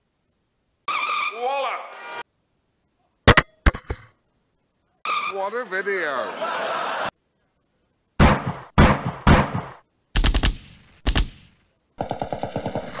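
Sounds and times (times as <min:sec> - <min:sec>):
automatic gunfire bursts: 0:08.2 - 0:13.0.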